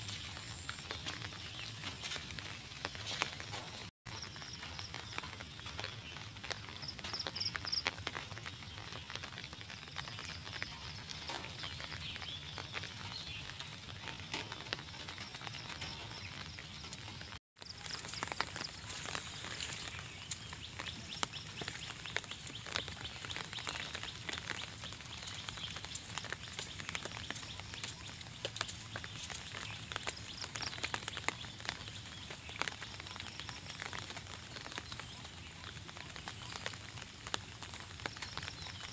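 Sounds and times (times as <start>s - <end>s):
rain falling on pond and leaves: 0.0s - 38.9s.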